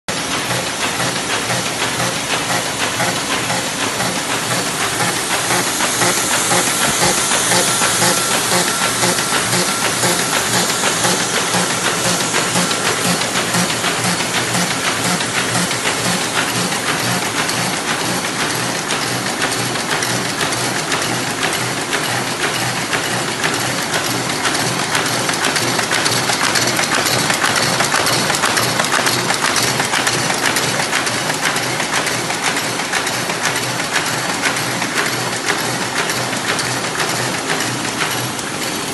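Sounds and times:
paper folding machine clattering: 0:00.1 - 0:38.9.

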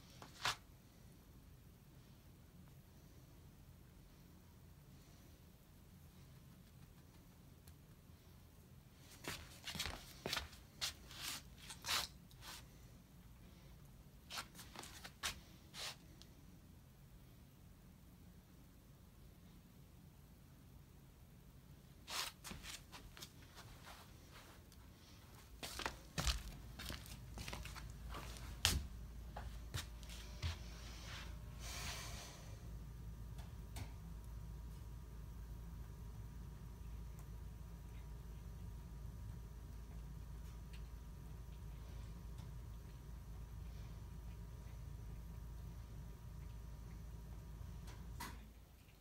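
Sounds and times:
soft scuffing and rustling: 0:09.0 - 0:12.8, 0:14.3 - 0:16.2, 0:22.0 - 0:31.4.

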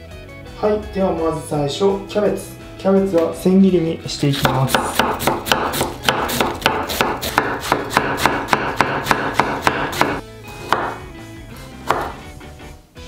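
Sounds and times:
knife chopping cabbage on board: 0:04.4 - 0:11.0, 0:11.8 - 0:12.2.

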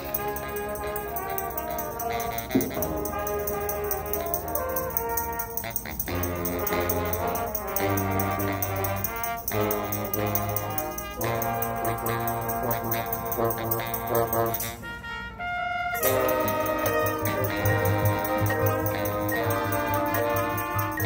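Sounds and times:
low brass notes: 0:00.0 - 0:21.0
marching band playing: 0:00.0 - 0:21.0
loud percussion hit: 0:02.5 - 0:03.8.

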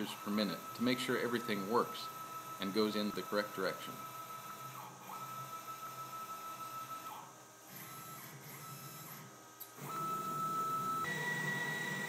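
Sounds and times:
stepper motor whine: 0:09.8 - 0:12.0.

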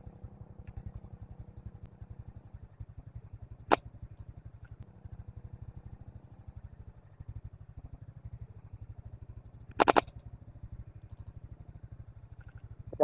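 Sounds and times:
small engine idling: 0:00.0 - 0:13.0
sharp snap: 0:09.7 - 0:10.1.

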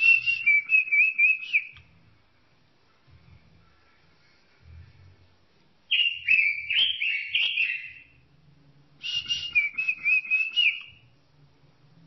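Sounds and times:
robin singing: 0:00.0 - 0:01.8, 0:05.9 - 0:08.2, 0:09.0 - 0:11.1.

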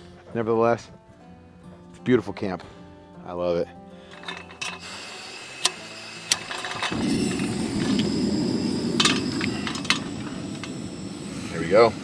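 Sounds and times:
kettle clicking onto grate: 0:04.1 - 0:04.9, 0:05.6 - 0:08.1, 0:09.0 - 0:10.8
gas burner flame rushing: 0:04.1 - 0:12.0
stove igniter clicks: 0:05.6 - 0:08.2, 0:09.0 - 0:10.8.

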